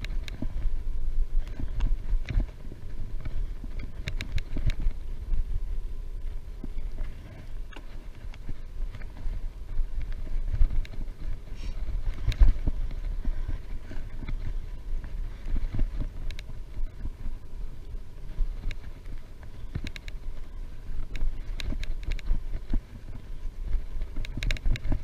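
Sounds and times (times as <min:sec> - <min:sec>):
light clicks: 0:00.0 - 0:00.5, 0:03.7 - 0:05.0, 0:15.4 - 0:16.5, 0:18.6 - 0:20.3, 0:21.0 - 0:22.8, 0:24.0 - 0:25.0
wind buffeting microphone: 0:00.0 - 0:25.0.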